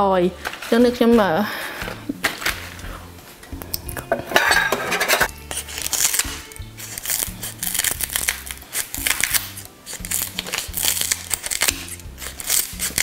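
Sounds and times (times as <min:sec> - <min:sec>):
background music with bass line: 0:00.0 - 0:13.0
scissors snipping leaves: 0:05.4 - 0:13.0.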